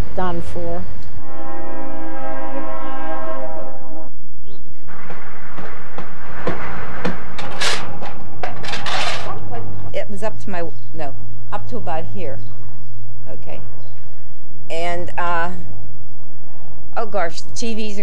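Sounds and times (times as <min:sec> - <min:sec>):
train horn chord: 0:01.2 - 0:04.2
knocks: 0:04.9 - 0:09.4.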